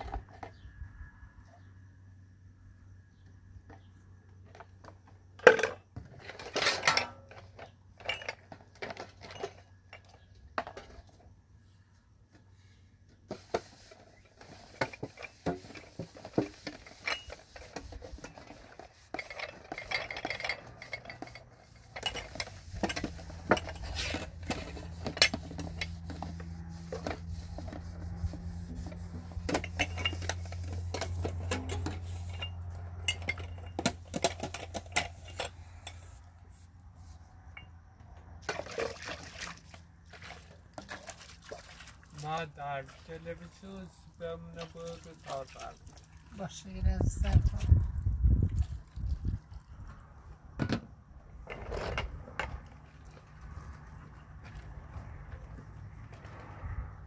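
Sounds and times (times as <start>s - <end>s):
metal dishes clinking and scraping: 5.4s - 11.1s, 14.8s - 36.2s.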